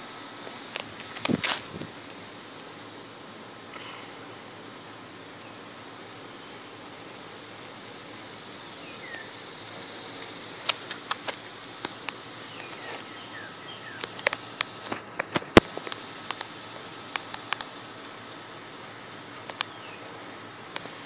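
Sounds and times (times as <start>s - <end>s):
faint outdoor hiss: 0.0s - 21.0s
sharp clicks and ticks: 10.2s - 12.8s, 13.9s - 17.8s, 19.4s - 19.8s.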